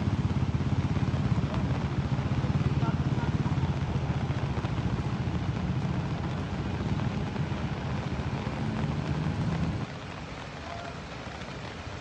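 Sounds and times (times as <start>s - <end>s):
engine running with low throb: 0.0s - 10.4s
rain hissing: 5.0s - 12.0s.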